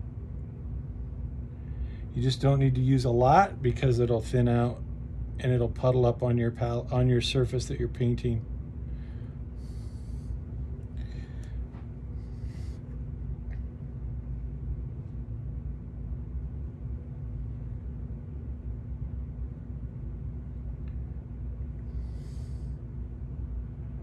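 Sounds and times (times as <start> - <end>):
faint constant tone: 0.0 - 24.0
low room hum: 0.0 - 24.0
soft breathy hisses: 9.0 - 10.4, 12.1 - 12.9, 21.9 - 22.8.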